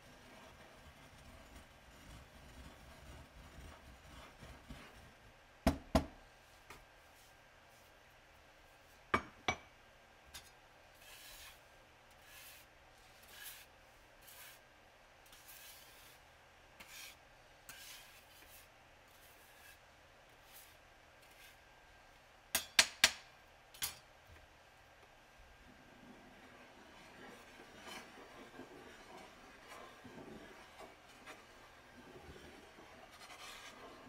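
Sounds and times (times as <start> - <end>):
blade scraping on glass: 11.0 - 11.6.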